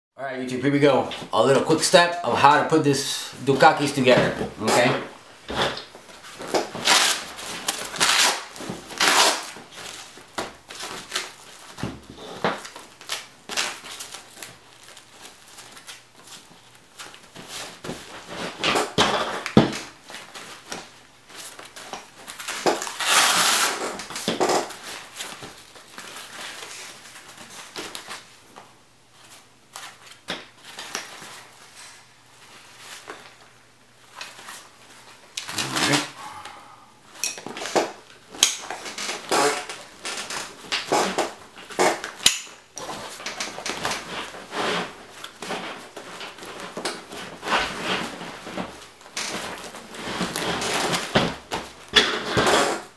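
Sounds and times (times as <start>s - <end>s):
fabric and webbing rustling: 0.8s - 52.0s
long scratchy noise: 35.4s - 37.2s.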